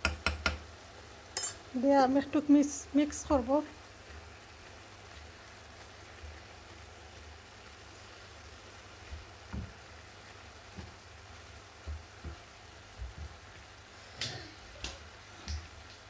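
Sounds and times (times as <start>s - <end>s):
spatula tapping pan: 0.0s - 0.7s
faint sizzle: 0.0s - 16.0s.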